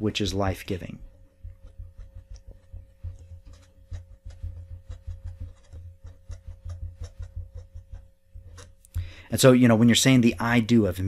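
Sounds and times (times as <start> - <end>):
marker scratching on paper: 1.0 - 8.8.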